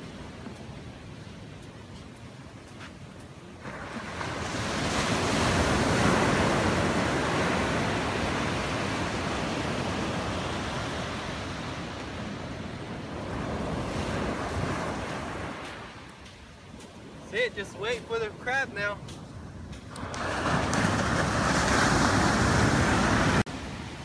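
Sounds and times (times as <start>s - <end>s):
surf breaking on beach: 3.6s - 16.1s, 19.9s - 24.0s.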